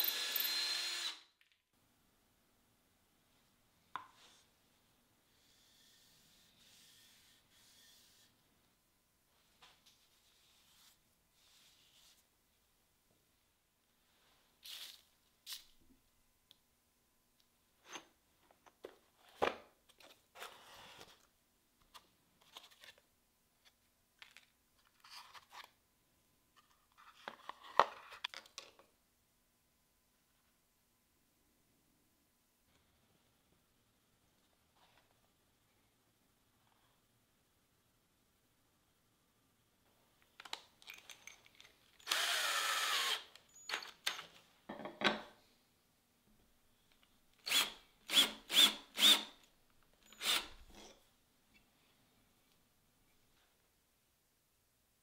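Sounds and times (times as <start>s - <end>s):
cordless drill motor whine: 0.0s - 1.2s, 42.0s - 43.3s
clicks and knocks of metal parts: 40.4s - 42.0s.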